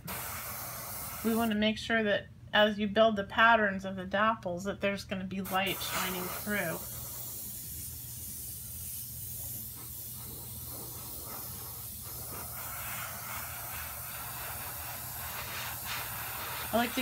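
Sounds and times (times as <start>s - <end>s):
airbrush spraying hiss: 0.0s - 1.6s, 5.4s - 17.0s.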